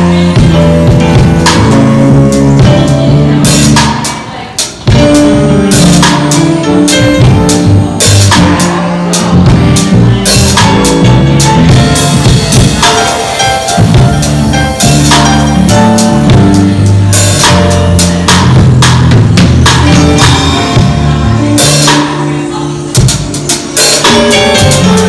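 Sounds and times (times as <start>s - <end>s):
electric bass: 0.0s - 4.3s, 4.9s - 25.0s
drum kit with cymbal crashes: 0.0s - 25.0s
keyboard: 0.0s - 25.0s.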